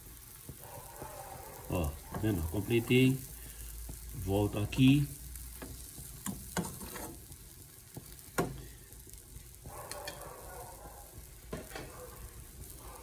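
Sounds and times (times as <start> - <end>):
faint steady hiss: 0.0 - 13.0
metal spoon scraping frying pan: 5.6 - 7.4.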